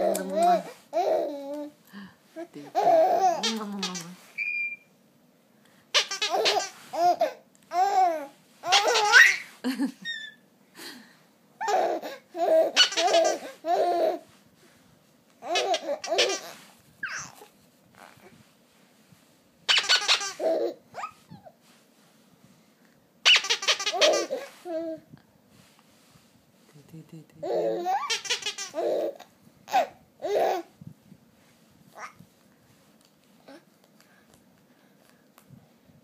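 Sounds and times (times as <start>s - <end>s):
baby laughing: 2.7s - 4.1s, 6.0s - 10.4s, 11.6s - 14.2s, 15.4s - 17.4s, 19.7s - 21.2s, 23.3s - 24.9s, 27.4s - 30.7s.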